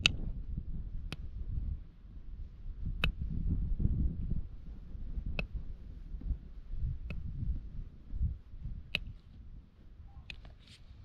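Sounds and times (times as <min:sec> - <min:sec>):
hoof nippers snapping: 0:03.0 - 0:03.2, 0:08.9 - 0:09.2, 0:10.2 - 0:10.8
low rustling and handling noise: 0:10.4 - 0:11.0.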